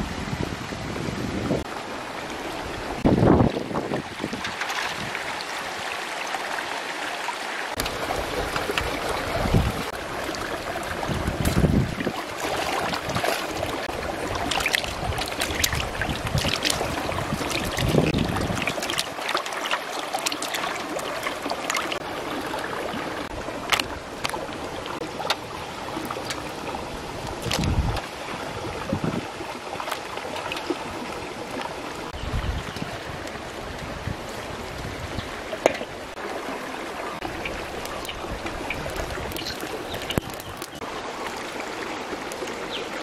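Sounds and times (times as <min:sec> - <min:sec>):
stream water rushing: 0:00.0 - 0:43.0
eels splashing in water: 0:07.8 - 0:24.5, 0:37.2 - 0:40.8.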